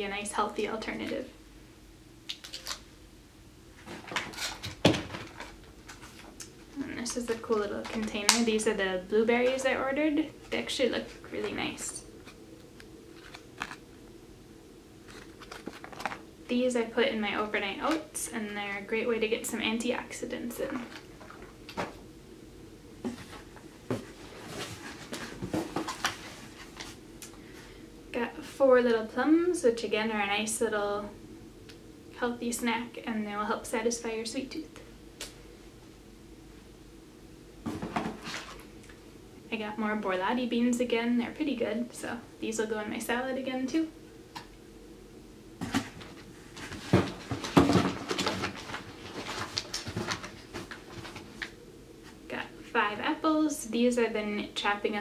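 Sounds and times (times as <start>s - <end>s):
produce and packaging rustling in box: 15.0s - 16.3s, 45.6s - 52.2s
rummaging in cardboard box: 23.1s - 27.0s, 37.7s - 38.6s, 45.6s - 51.5s.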